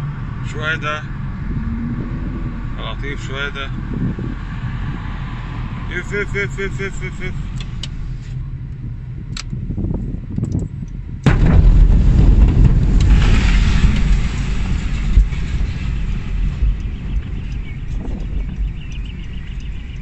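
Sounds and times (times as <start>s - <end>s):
very loud explosion boom: 0.0s - 7.8s, 11.2s - 18.7s
heavy rumbling: 0.0s - 20.0s
road noise inside car: 0.0s - 20.0s.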